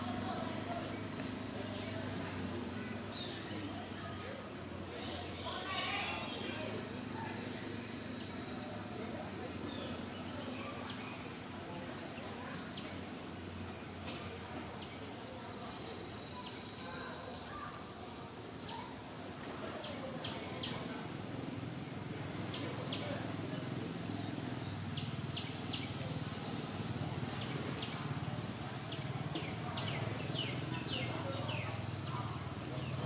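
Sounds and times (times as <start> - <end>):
insect chorus drone: 0.0 - 33.0.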